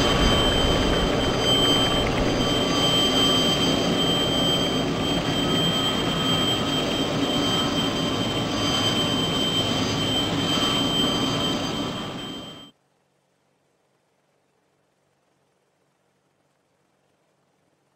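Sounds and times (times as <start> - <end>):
helicopter engine and rotor: 0.0 - 12.7
high-pitched turbine whine: 0.0 - 12.7.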